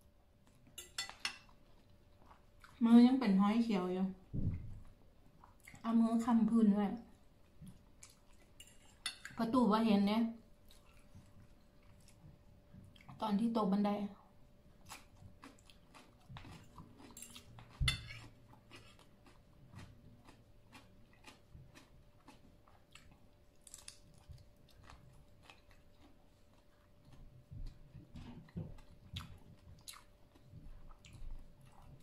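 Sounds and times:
faint steady hum: 0.0s - 32.0s
chewing with wet mouth clicks: 5.3s - 5.9s, 7.6s - 9.4s, 10.6s - 13.2s, 14.8s - 32.0s.

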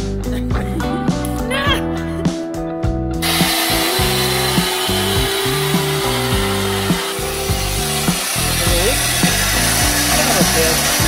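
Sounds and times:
background music with bass line: 0.0s - 11.0s
hose hissing: 3.2s - 11.0s.

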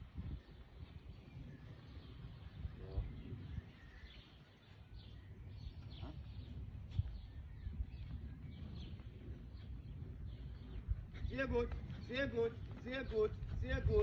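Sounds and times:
bird chirps: 0.4s - 11.0s.

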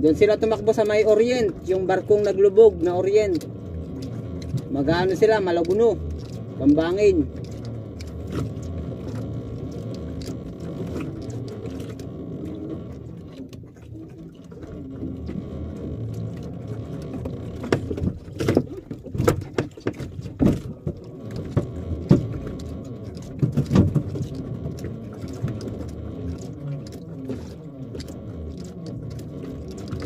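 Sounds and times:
boat engine humming: 0.0s - 30.0s
sharp knocks and thumps: 16.4s - 30.0s.

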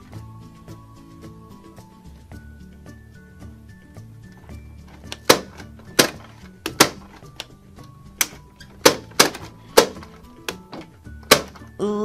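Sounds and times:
background music: 0.0s - 12.0s
plastic toy clacking: 4.9s - 11.7s.

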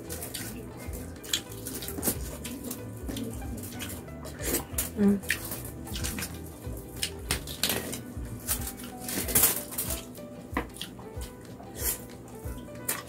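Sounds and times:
aluminium foil crinkling: 0.0s - 10.1s
background music: 0.0s - 13.0s
chewing and lip-smacking: 0.0s - 13.0s.

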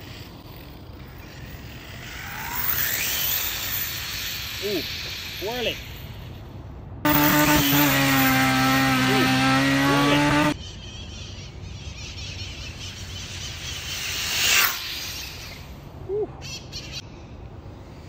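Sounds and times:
rc car motor whine: 0.0s - 6.3s, 7.1s - 10.6s.

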